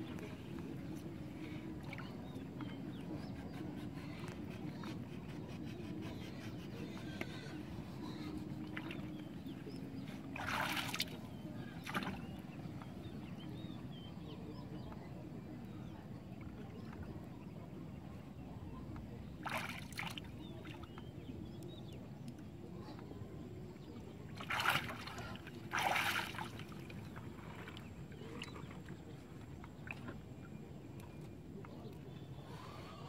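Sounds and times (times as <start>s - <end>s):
low background noise: 0.0s - 33.0s
water sloshing against canoe: 6.8s - 13.5s, 18.6s - 32.5s
short loud splashes: 24.4s - 26.7s.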